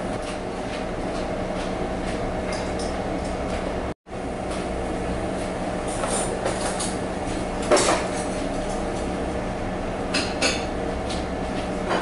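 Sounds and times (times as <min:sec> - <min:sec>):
dining room hum: 0:00.0 - 0:12.0.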